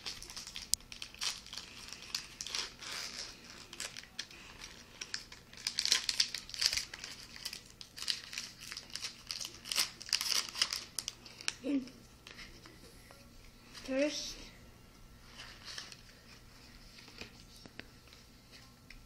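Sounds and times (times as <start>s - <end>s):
foil wrapper crinkling and tearing: 0.0s - 12.4s.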